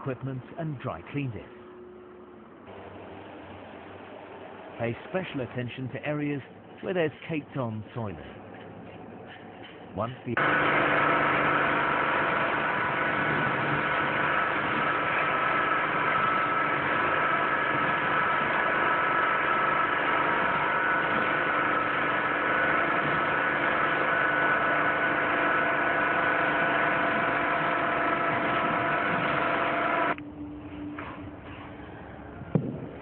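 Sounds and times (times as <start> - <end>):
pressure washer running: 10.4 - 30.2.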